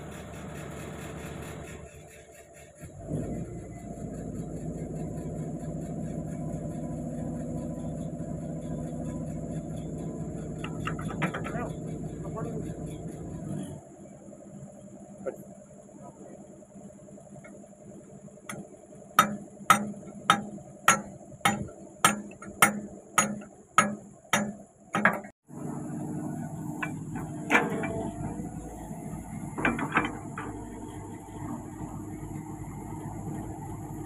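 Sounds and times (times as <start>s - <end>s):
excavator engine idling: 0.0s - 34.0s
metal knocks: 10.6s - 11.9s, 18.5s - 25.3s, 26.8s - 28.5s, 29.5s - 30.8s
hammer striking steel pin: 18.5s - 25.3s.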